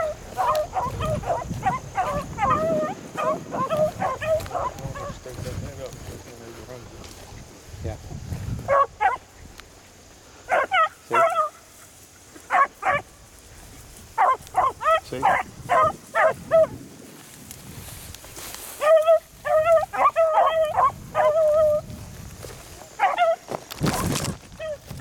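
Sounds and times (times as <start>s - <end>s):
hounds barking: 0.0s - 5.4s, 8.6s - 9.3s, 10.4s - 13.2s, 14.1s - 16.8s, 18.6s - 22.0s, 22.6s - 23.6s, 24.6s - 24.9s.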